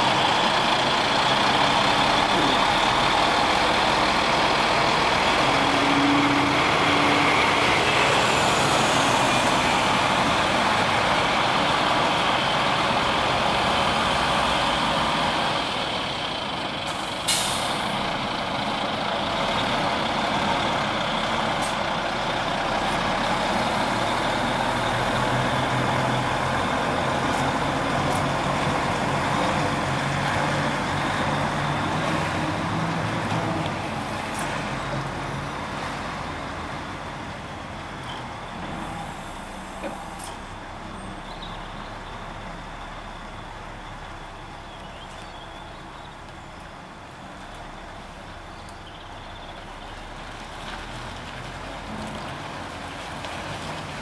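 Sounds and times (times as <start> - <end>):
lorry diesel engine running: 0.0 - 54.0
air brake hiss: 17.0 - 17.9, 38.8 - 40.5.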